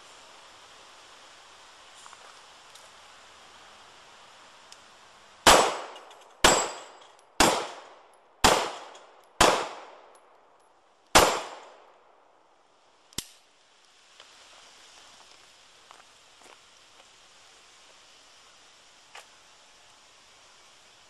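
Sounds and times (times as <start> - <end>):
handgun shots with echo: 5.5 - 10.0, 11.2 - 11.8
quiet sharp click: 13.1 - 13.4.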